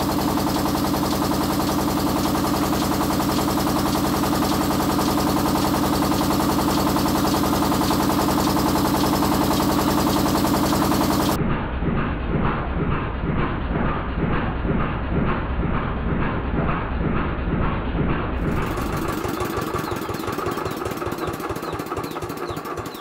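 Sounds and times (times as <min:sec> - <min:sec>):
corn mill grinding: 0:00.0 - 0:11.4, 0:18.4 - 0:23.0.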